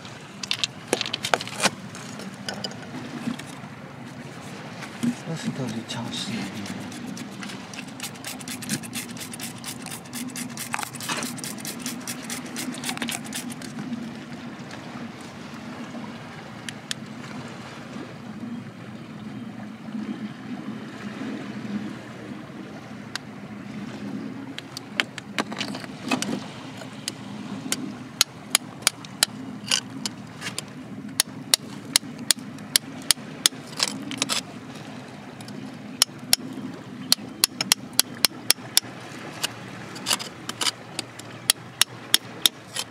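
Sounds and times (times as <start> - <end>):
spray bottle pumping clicks: 6.5 - 13.7.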